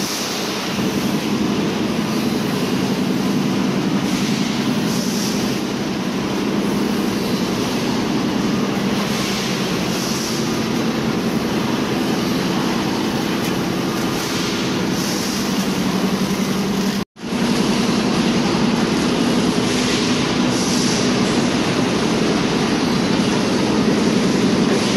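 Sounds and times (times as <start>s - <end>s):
machinery humming: 0.0s - 24.9s.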